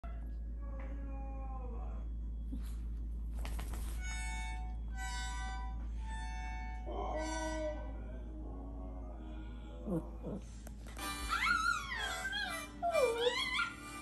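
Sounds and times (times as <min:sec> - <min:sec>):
dogs howling: 0:00.0 - 0:02.1, 0:06.9 - 0:10.5, 0:11.2 - 0:14.0.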